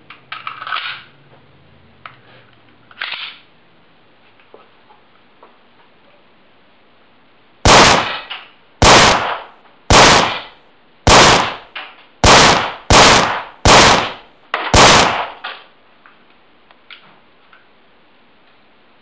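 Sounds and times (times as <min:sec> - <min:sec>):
pistol shots: 0:07.7 - 0:15.6.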